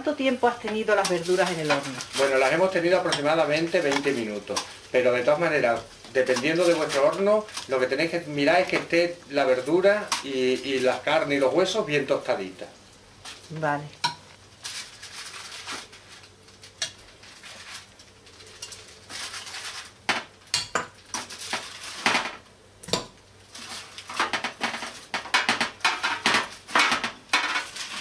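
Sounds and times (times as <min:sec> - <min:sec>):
aluminium foil crinkling: 0:00.2 - 0:11.8, 0:14.3 - 0:22.4, 0:23.4 - 0:28.0.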